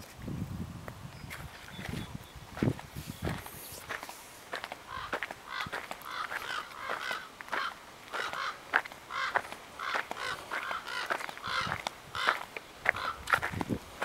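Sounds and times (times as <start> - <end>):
footsteps on wood chips: 1.3 - 14.0
crows cawing: 4.8 - 13.5.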